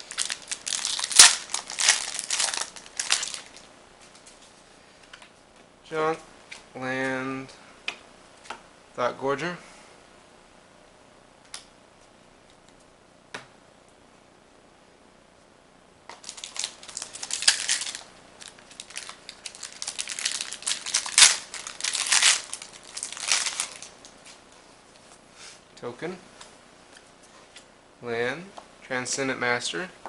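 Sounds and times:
foil wrapper crinkling and tearing: 0.0 - 3.7, 16.1 - 24.1.

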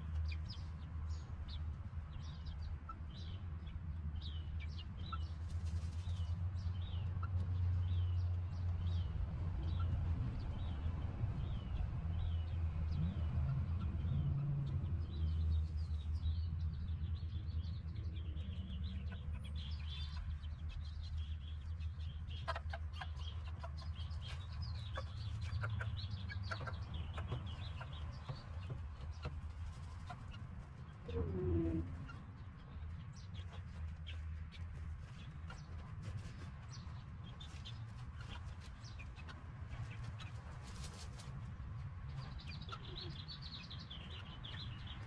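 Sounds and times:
small birds chirping: 0.0 - 45.0
chickens clucking softly: 17.9 - 45.0.

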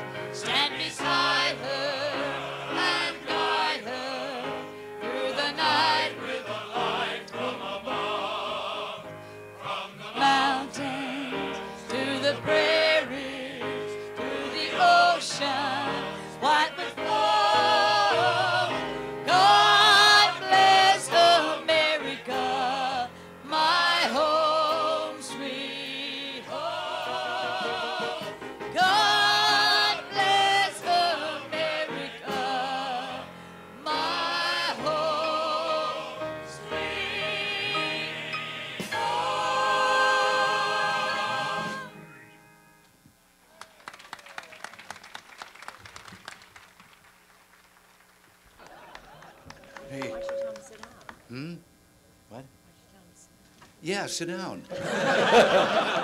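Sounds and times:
male chorus singing: 0.4 - 42.0, 54.8 - 56.0
woman singing with vibrato: 11.9 - 13.6, 14.6 - 28.2, 28.8 - 33.2.

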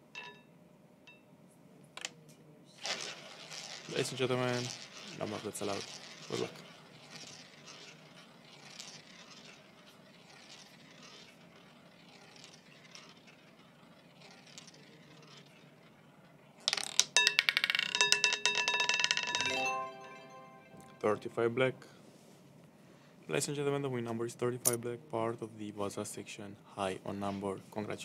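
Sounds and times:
roulette wheel spinning: 2.8 - 21.5
casino win jingle: 19.4 - 21.6.

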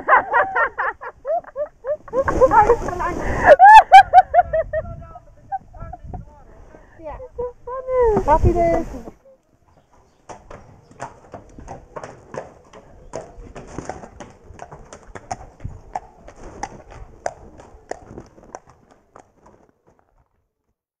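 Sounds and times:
horse hooves clip-clopping: 8.1 - 20.8.

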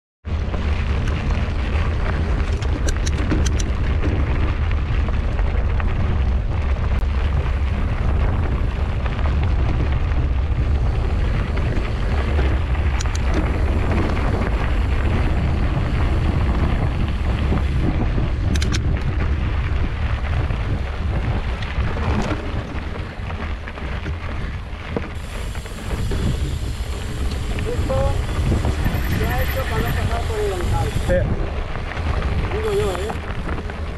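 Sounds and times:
wind buffeting microphone: 0.2 - 33.9
clicks and rattles: 2.4 - 4.2, 12.9 - 13.4, 18.5 - 19.0.

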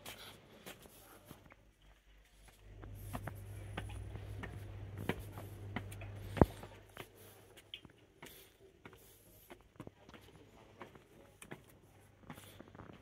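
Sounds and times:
footsteps on stone steps: 0.0 - 13.0
low steady hum: 0.2 - 7.6.

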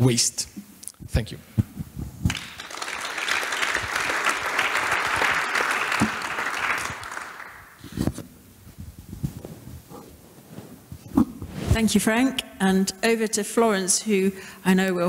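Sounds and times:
audience applauding: 2.3 - 7.8.

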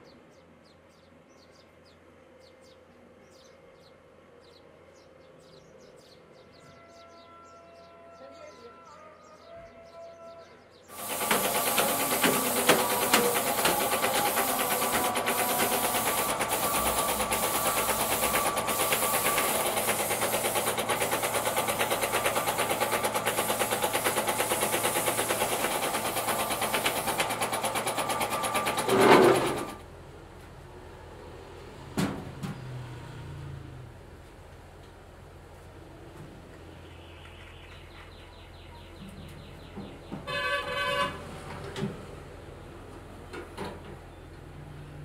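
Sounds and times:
paint spray gun hissing: 10.9 - 28.9.

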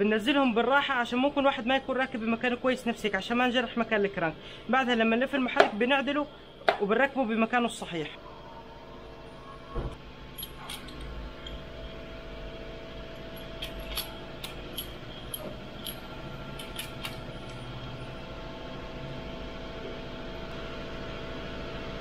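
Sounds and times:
steady background hum: 0.0 - 22.0
metal tools clicking and tapping: 10.4 - 11.6, 13.2 - 17.9.

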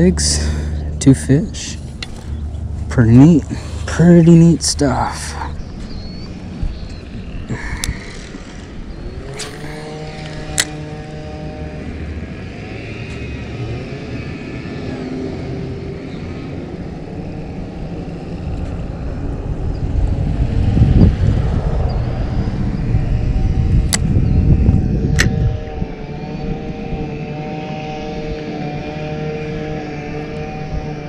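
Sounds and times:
low rumble: 0.0 - 31.0
vehicle engine droning: 0.0 - 31.0
sharp clicks: 6.9 - 8.6.

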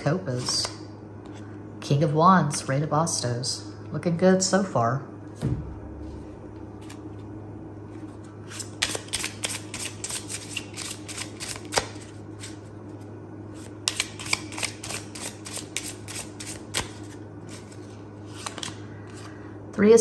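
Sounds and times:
low steady hum: 0.0 - 20.0
playing cards being shuffled: 6.0 - 19.4.

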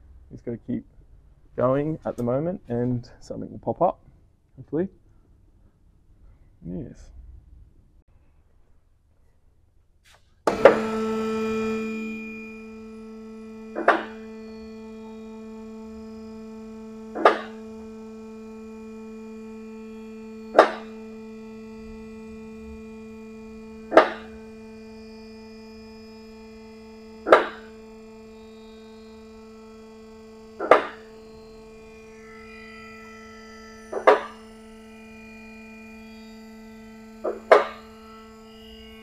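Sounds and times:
sharp ringing hit: 10.5 - 16.4, 20.5 - 21.1, 23.8 - 25.0, 30.6 - 36.2
held drone note: 10.5 - 39.0.

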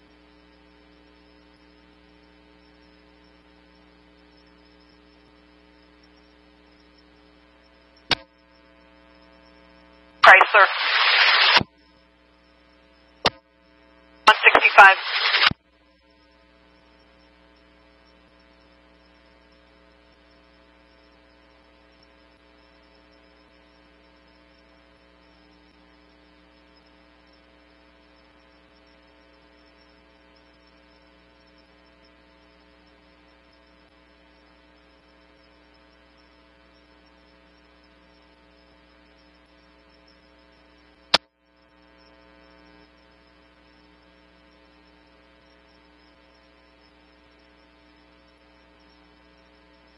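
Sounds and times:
radio scanner electrical hum: 0.0 - 49.9
sharp click: 8.0 - 8.3, 13.2 - 13.4.

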